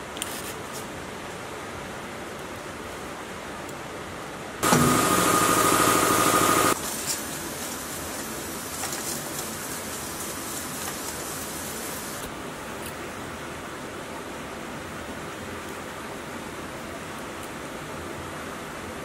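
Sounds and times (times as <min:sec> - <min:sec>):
brush scrubbing metal parts: 0:04.6 - 0:12.3
high mechanical whine: 0:04.6 - 0:12.3.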